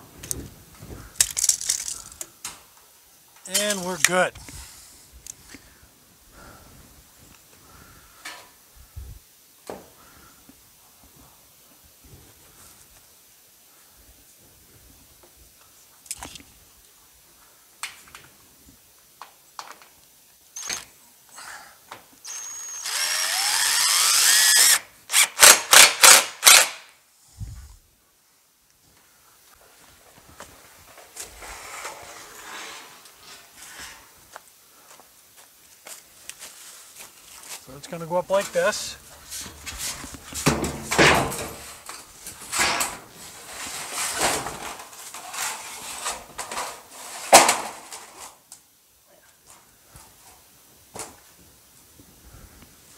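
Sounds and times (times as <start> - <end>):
cordless drill whining: 22.2 - 25.5
metal roofing sheet scraping and rattling: 30.6 - 34.2, 38.4 - 48.4.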